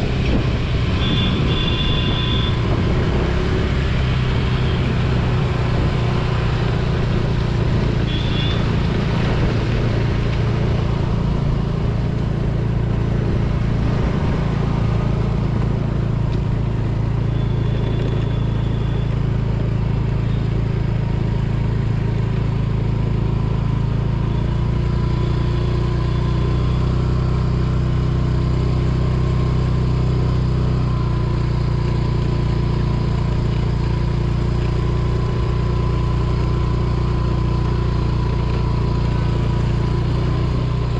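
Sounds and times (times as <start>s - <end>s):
rushing wind: 0.0s - 17.2s
road noise: 0.0s - 40.9s
scooter engine running: 0.0s - 40.9s.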